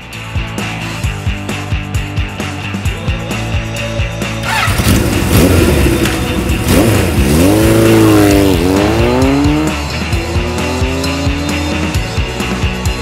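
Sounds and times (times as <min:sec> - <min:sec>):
music with steady drum beat: 0:00.0 - 0:13.0
vehicle engine accelerating: 0:04.4 - 0:12.1.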